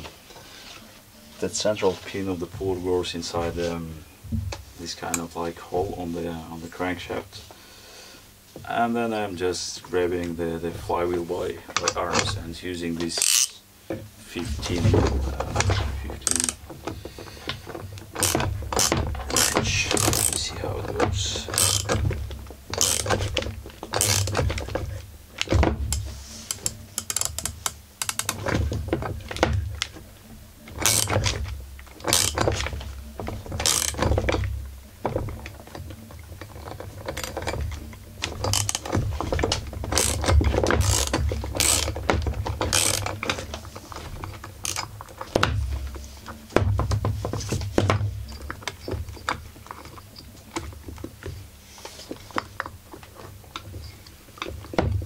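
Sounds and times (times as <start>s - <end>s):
ratchet wrench clicking: 13.2s - 13.6s, 16.2s - 16.6s, 18.2s - 20.5s, 21.2s - 22.0s, 22.7s - 24.5s, 25.9s - 28.4s, 30.8s - 31.4s, 32.0s - 32.6s, 33.6s - 34.5s, 39.9s - 42.0s, 42.7s - 43.2s, 44.6s - 44.9s
metal tools clanking: 14.3s - 46.5s.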